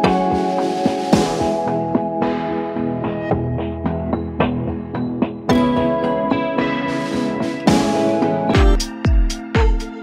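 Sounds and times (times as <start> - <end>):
electronic beat with kick drum: 0.0 - 2.4, 6.8 - 10.0.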